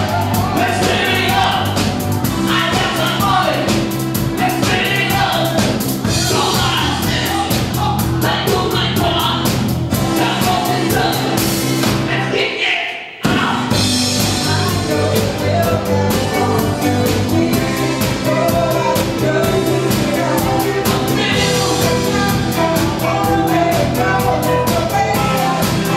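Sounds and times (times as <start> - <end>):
drums: 0.0 - 25.9
man singing: 0.0 - 25.9
woman singing: 14.3 - 25.9.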